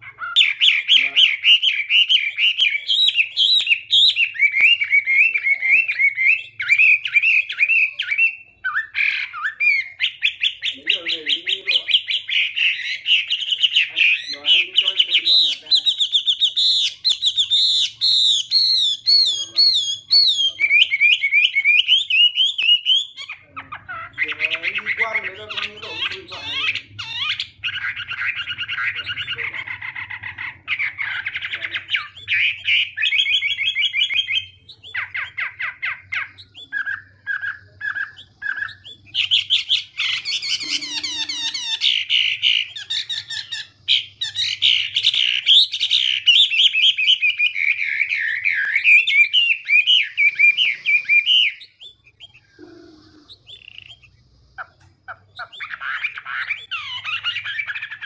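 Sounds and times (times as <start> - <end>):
bird singing whistled phrases: 0.0 - 54.2, 55.1 - 58.0.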